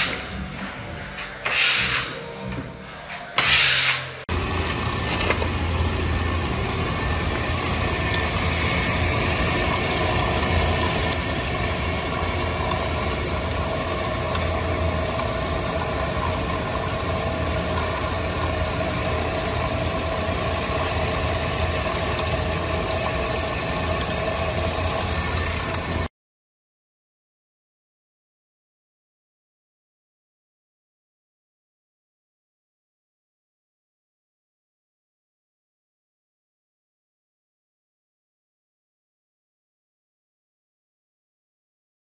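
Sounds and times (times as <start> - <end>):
floor scraper machine hum: 3.1 - 26.1.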